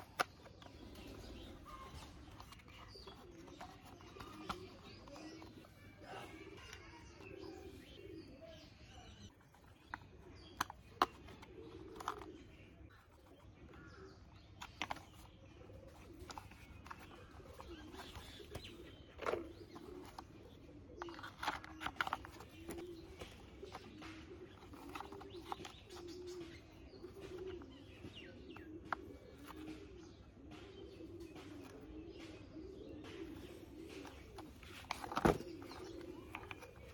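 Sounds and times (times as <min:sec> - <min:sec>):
pigeons cooing: 0:00.0 - 0:36.9
screwdriver being handled: 0:02.3 - 0:05.8, 0:16.0 - 0:20.3, 0:21.0 - 0:23.8, 0:24.5 - 0:26.0, 0:34.0 - 0:36.9
plastic toy parts clicking: 0:21.0 - 0:23.9.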